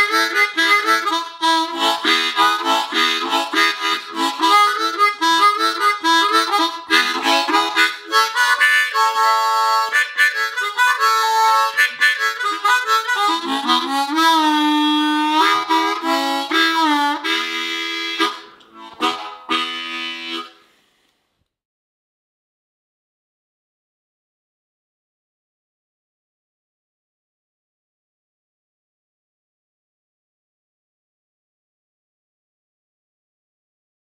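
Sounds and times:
harmonica playing: 0.0s - 20.8s.

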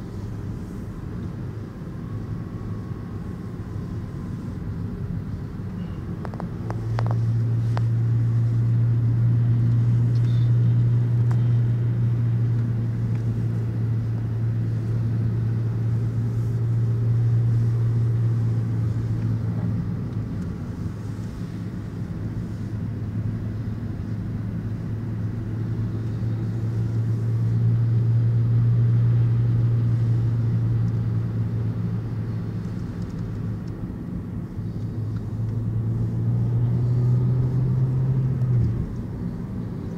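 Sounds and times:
car engine and tyre drone: 0.0s - 39.9s.

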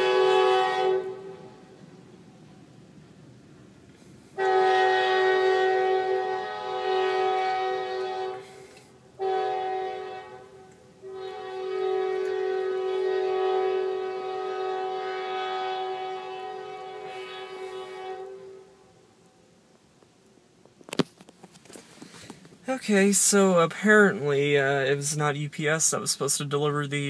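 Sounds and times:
locomotive air horn blasts: 0.0s - 1.8s, 4.3s - 19.0s.

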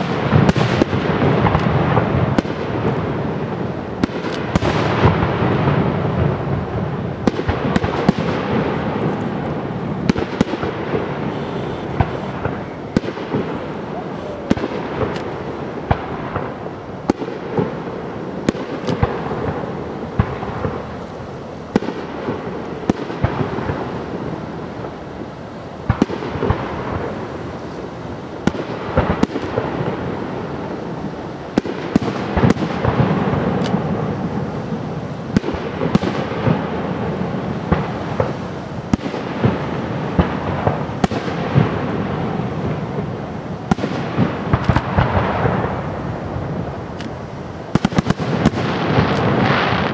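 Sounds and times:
continuous rumble: 0.0s - 49.9s.

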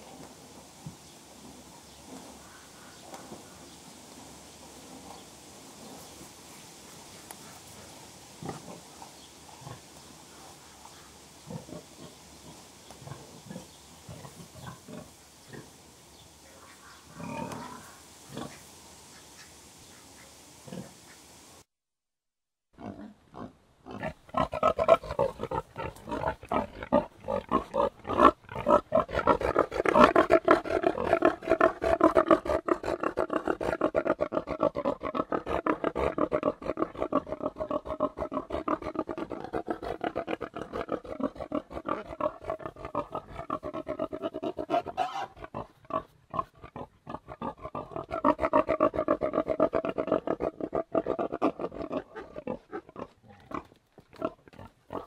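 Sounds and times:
pigs grunting: 17.1s - 18.6s, 22.8s - 55.0s.

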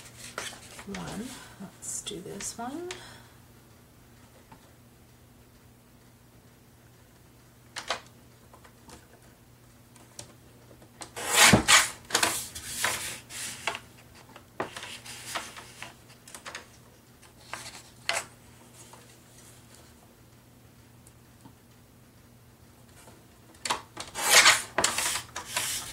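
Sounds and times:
paper rustling: 0.0s - 1.3s, 14.6s - 19.5s, 24.0s - 25.9s.

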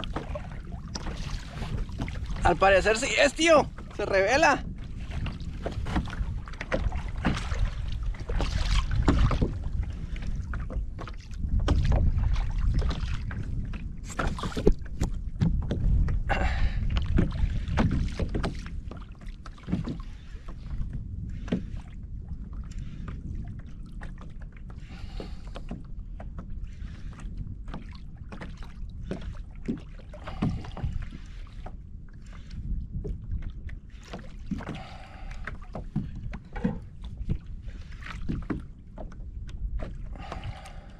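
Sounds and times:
water moving against hull: 0.0s - 40.9s
wind rumble on microphone: 0.0s - 40.9s
gear knocking against kayak: 3.5s - 9.6s, 34.1s - 37.5s.

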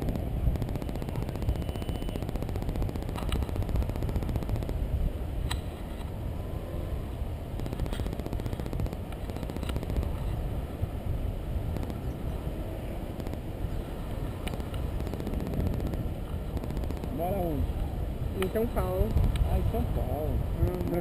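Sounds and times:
wind buffeting microphone: 0.0s - 21.0s
faint sharp clicks: 14.4s - 17.2s.

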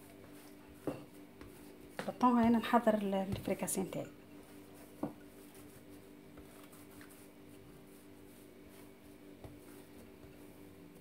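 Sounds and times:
rolling pin rubbing over dough: 0.0s - 3.8s, 4.4s - 11.0s
low steady hum: 0.0s - 11.0s.

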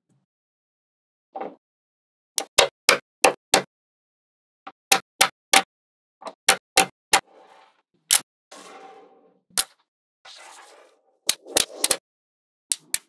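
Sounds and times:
soft scrape: 7.2s - 7.8s, 8.5s - 9.4s, 10.3s - 11.2s.

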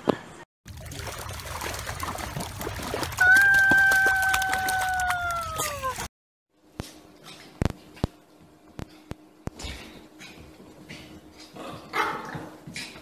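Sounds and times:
splashing in shallow water: 0.7s - 6.1s
dog crying high-pitched: 3.2s - 6.1s.

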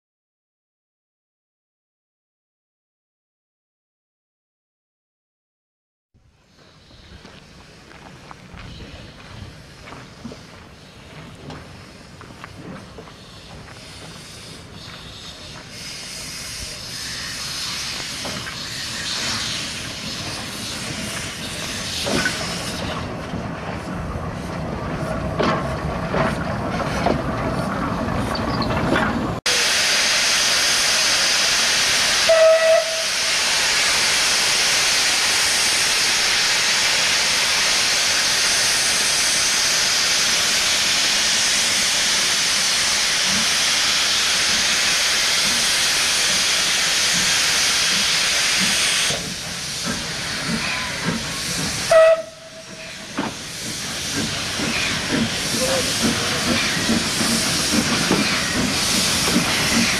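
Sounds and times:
steam hissing: 6.4s - 26.4s, 29.5s - 59.9s
locomotive clanks: 20.0s - 29.4s, 47.9s - 59.9s
steam whistle blast: 29.5s - 33.7s, 51.8s - 53.0s.

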